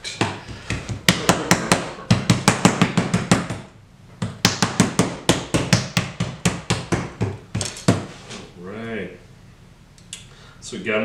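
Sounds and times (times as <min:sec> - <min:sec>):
hands slapping clay: 0:02.1 - 0:08.1.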